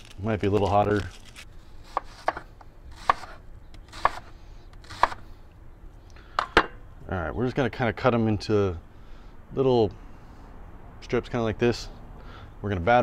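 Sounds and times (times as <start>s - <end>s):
knife cutting on wooden board: 1.8s - 5.3s.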